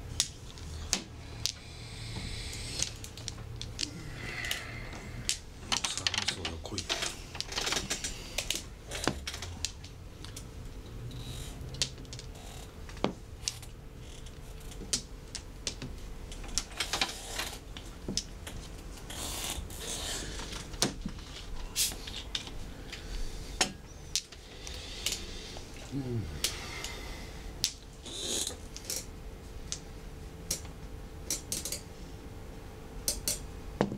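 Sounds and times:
mahjong tiles clicking: 2.8s - 4.6s.

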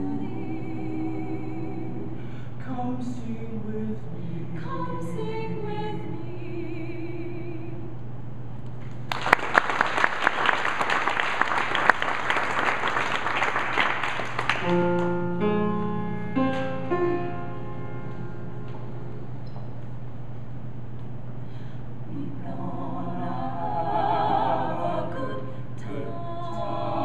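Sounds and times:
vocal quartet singing: 0.0s - 7.9s, 22.0s - 27.0s
audience clapping: 8.9s - 15.2s.

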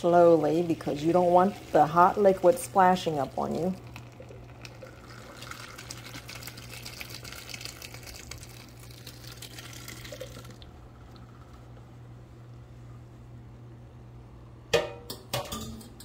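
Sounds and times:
water and pasta pouring into colander: 0.1s - 10.7s.

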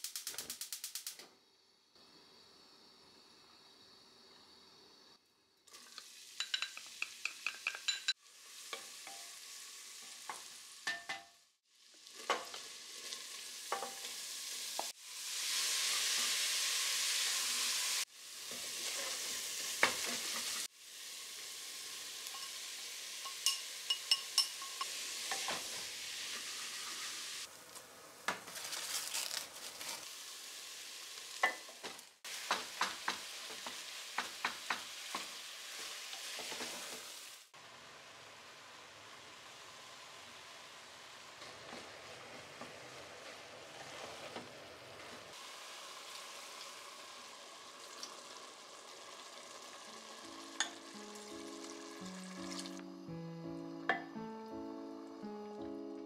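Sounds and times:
food sizzling in a pot: 0.0s - 55.9s
wooden spoon scraping and tapping pot: 6.4s - 9.2s.

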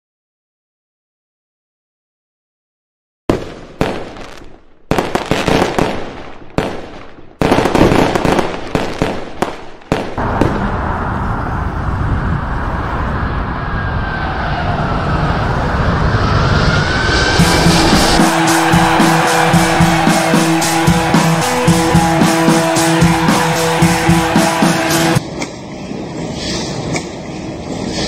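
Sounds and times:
firework bursts: 3.3s - 11.4s, 17.1s - 25.1s
jet engines roaring on takeoff: 10.2s - 28.0s.

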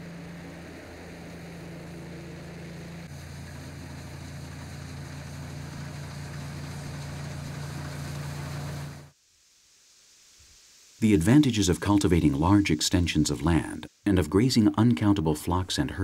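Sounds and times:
combine harvester engine hum: 0.0s - 9.1s.

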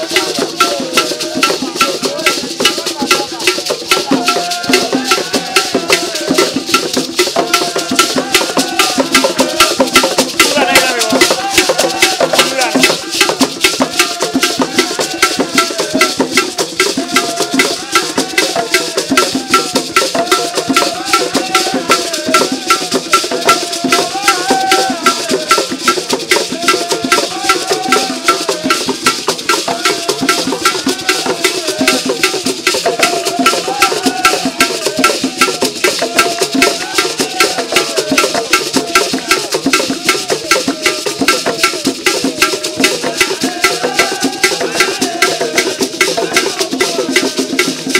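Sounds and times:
drum ensemble dance rhythm: 0.0s - 47.9s
voices singing: 0.0s - 47.9s.

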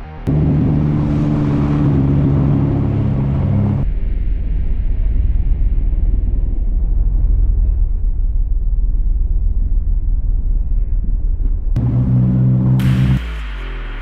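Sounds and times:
engine and tyres rumbling on ice: 0.0s - 13.2s
low drone of held tones: 6.4s - 14.0s.

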